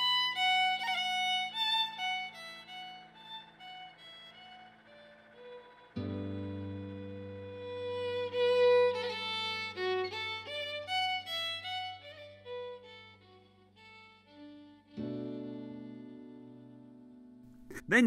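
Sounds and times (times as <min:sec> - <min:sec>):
held low chord: 0:00.0 - 0:12.6
fiddle melody: 0:00.0 - 0:17.1.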